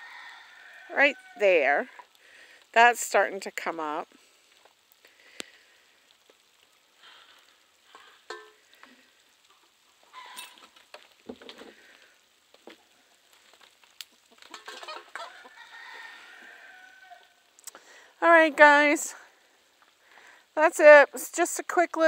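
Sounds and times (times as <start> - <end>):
rooster crowing: 0.0 - 1.4, 14.9 - 17.4
chickens clucking: 14.1 - 17.2.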